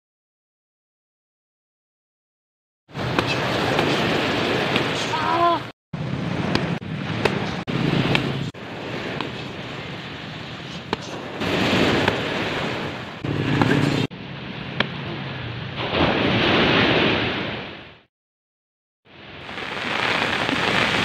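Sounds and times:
steady rushing noise: 0:06.0 - 0:15.8.

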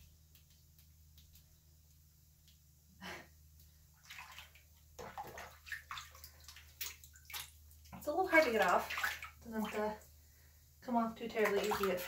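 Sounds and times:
low steady hum: 0:00.0 - 0:12.0
hand splashing in bathwater: 0:04.0 - 0:09.9, 0:11.3 - 0:12.0.

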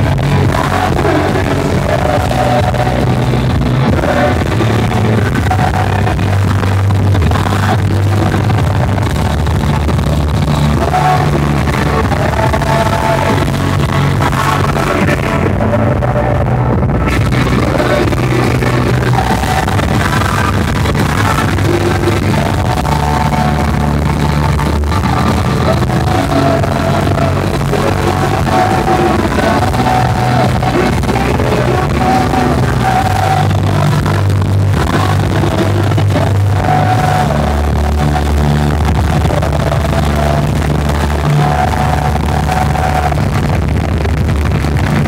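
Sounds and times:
live worship band music: 0:00.0 - 0:45.0.

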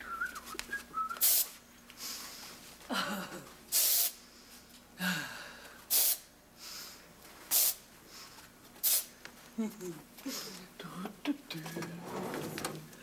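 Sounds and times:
aerosol spray can hissing: 0:01.2 - 0:01.6, 0:03.7 - 0:04.2, 0:05.9 - 0:06.2, 0:07.5 - 0:07.8, 0:08.8 - 0:09.1.

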